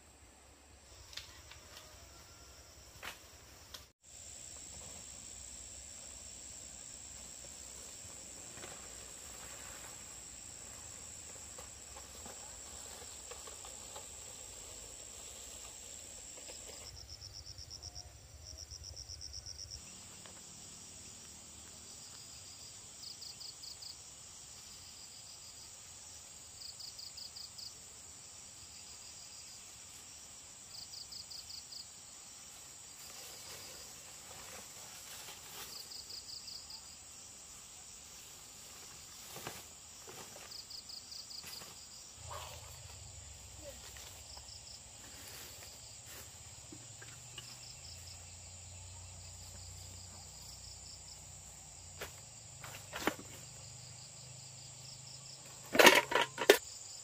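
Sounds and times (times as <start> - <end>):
insects trilling: 0.8 - 57.0
insects chirping rapidly: 14.0 - 29.7.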